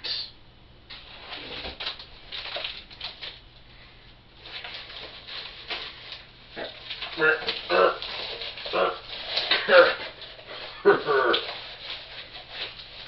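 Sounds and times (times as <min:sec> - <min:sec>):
clothing rustling: 0:04.4 - 0:13.0.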